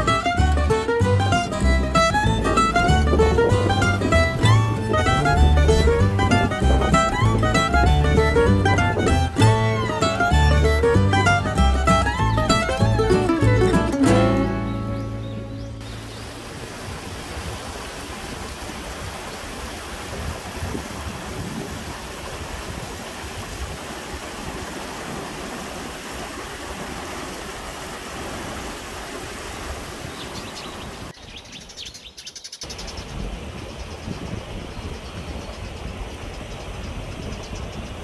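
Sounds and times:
stream running over rocks: 0:00.0 - 0:31.2
bird chirps: 0:14.6 - 0:16.3, 0:30.1 - 0:38.0.

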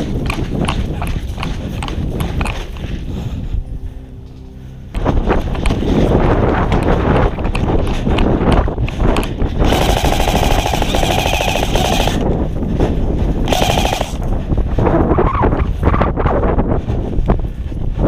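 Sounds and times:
airsoft rifle firing bursts: 0:09.6 - 0:12.2, 0:13.5 - 0:14.2.

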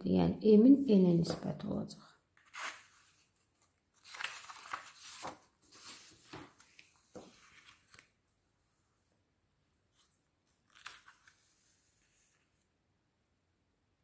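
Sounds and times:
paper sheets rustling: 0:02.4 - 0:08.2, 0:10.0 - 0:12.6.

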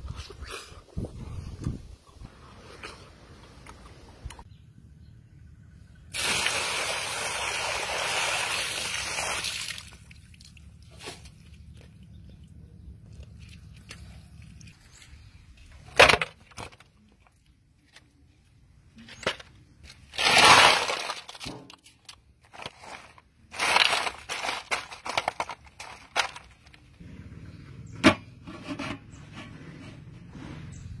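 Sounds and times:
ice clinking and crunching: 0:19.0 - 0:26.9
ice clattering into metal basin: 0:20.1 - 0:21.8, 0:22.5 - 0:26.7.

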